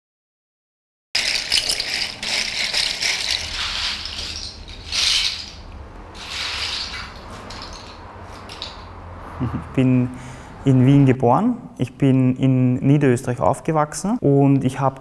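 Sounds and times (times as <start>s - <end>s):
small hard pieces rattling: 1.2s - 8.9s.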